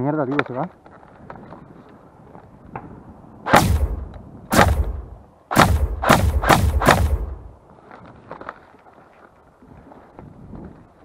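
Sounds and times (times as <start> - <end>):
airsoft rifle shots: 3.5 - 7.5.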